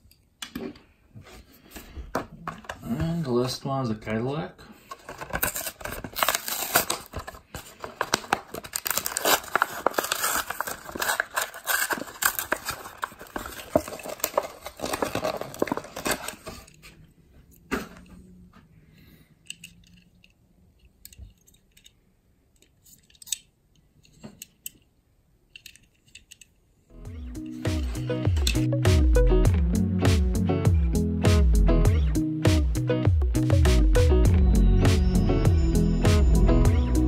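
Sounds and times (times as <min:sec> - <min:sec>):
plastic packaging crinkling and tearing: 0:04.8 - 0:16.9.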